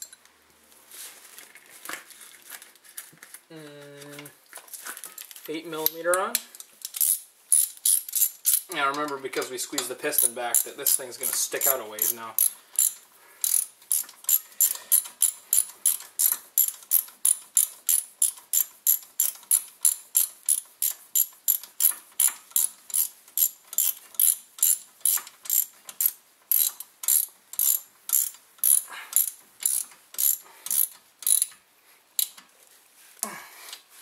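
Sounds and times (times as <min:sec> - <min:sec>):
ratchet wrench clicking: 0:06.8 - 0:09.2, 0:09.8 - 0:31.6, 0:32.2 - 0:32.4.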